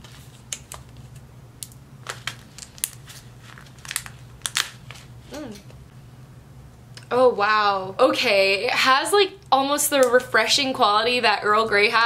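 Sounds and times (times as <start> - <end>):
plastic pouch crinkling: 2.0 - 5.1.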